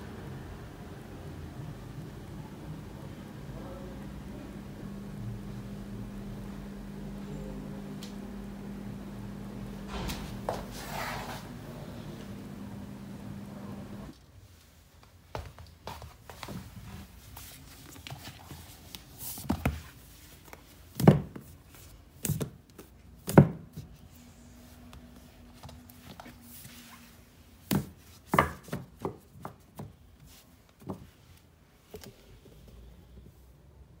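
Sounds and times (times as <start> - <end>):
books knocking on wooden shelf: 21.0 - 21.5, 23.2 - 23.8, 27.7 - 29.9.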